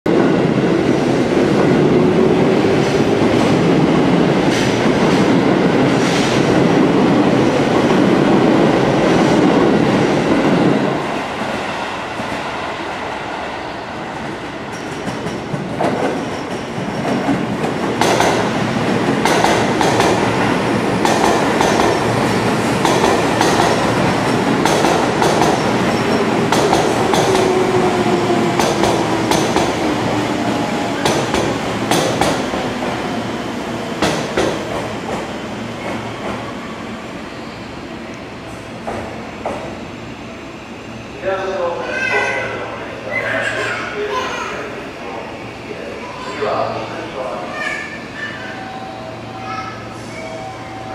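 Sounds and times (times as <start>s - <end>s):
electric train arriving: 0.1s - 50.9s
falling whine of slowing train: 0.1s - 50.9s
train wheels clicking over rail joints: 19.1s - 20.3s, 21.0s - 22.1s, 22.8s - 25.8s, 26.4s - 27.6s, 28.5s - 29.8s.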